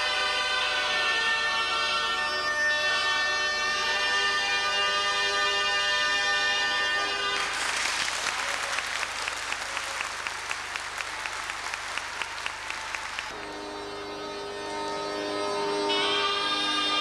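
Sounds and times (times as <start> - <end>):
bagpipe and shawm music: 0.0 - 7.8, 13.3 - 17.0
bagpipe drone: 0.0 - 7.8, 13.3 - 17.0
audience applause: 7.0 - 13.4
single person clapping evenly: 7.5 - 13.4.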